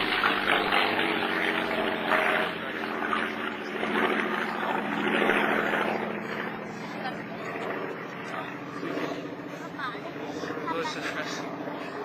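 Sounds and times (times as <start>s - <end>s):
propeller plane engine droning: 0.0s - 12.0s.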